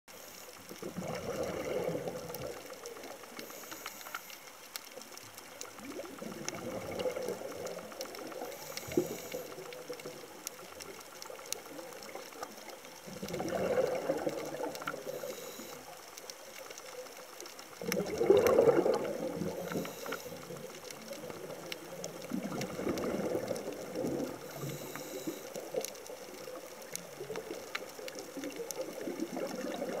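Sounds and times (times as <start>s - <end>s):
faint hiss of inhalation: 0.1s - 0.7s, 3.4s - 4.5s, 8.4s - 9.7s, 15.0s - 16.0s, 19.5s - 20.7s, 24.4s - 25.7s
bubbly gurgling exhalation: 0.7s - 3.2s, 5.7s - 11.0s, 13.0s - 15.4s, 17.8s - 30.0s.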